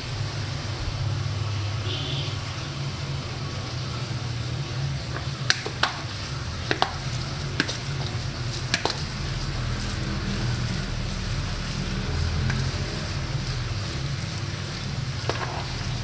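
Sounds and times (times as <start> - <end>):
spoon squelching meat mixture: 5.5 - 16.0.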